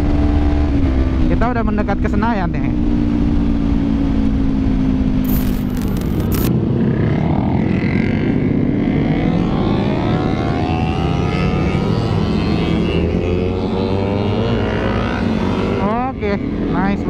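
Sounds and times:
road rumble: 2.7s - 7.0s
motorcycle engine accelerating: 5.2s - 6.5s.

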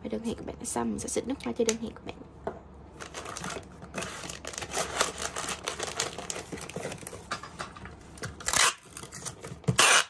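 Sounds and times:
plastic packaging crinkling: 2.9s - 7.4s
packing tape ripping: 3.0s - 7.1s, 8.2s - 10.0s
cardboard box rustling: 3.1s - 7.2s.

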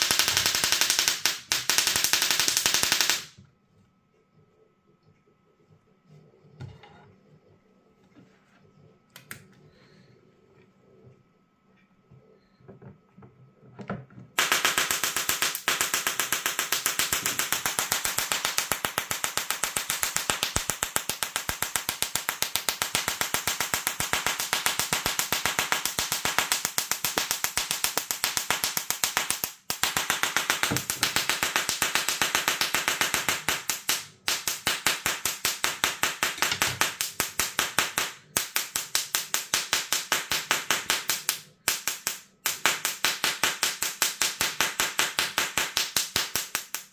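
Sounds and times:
tesla coil crackling: 0.0s - 3.4s, 14.4s - 46.9s.

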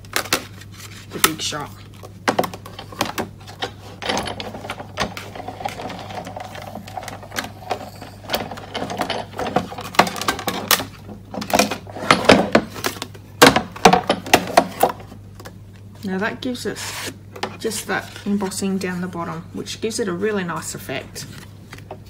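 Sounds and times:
hand-cranked machine grinding rumble: 2.6s - 12.7s
plastic plates clicking and clattering: 8.4s - 15.5s.

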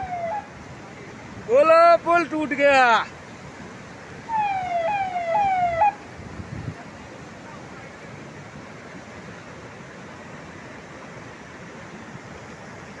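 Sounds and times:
siren falling sweeps: 0.0s - 0.5s, 4.3s - 6.0s
wind and rain rushing: 0.0s - 13.0s.

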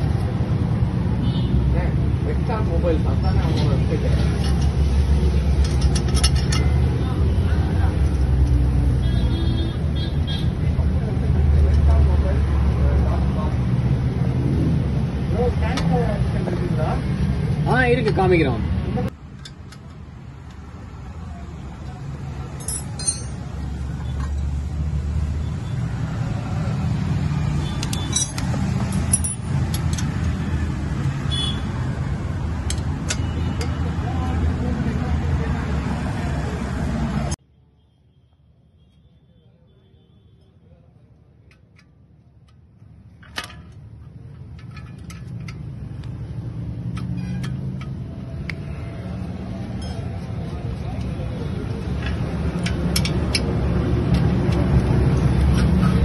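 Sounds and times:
metal clicks and clinks: 5.5s - 6.9s, 22.5s - 24.4s, 27.7s - 30.4s, 43.2s - 48.7s, 49.7s - 50.3s, 51.8s - 56.0s
metal tools clinking on pipe: 5.5s - 6.9s, 22.5s - 24.4s, 27.7s - 30.3s, 49.7s - 50.3s
sharp metal clank: 22.6s - 23.5s.

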